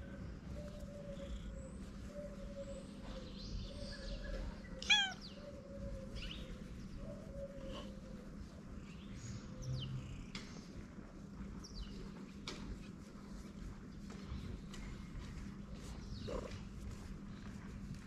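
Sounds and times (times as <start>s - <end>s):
low street background: 0.0s - 18.0s
cat chirping meow: 4.8s - 5.4s.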